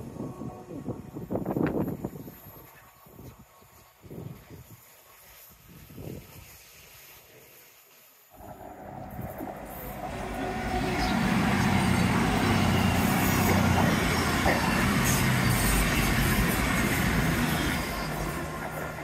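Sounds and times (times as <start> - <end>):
train passing: 8.3 - 19.0.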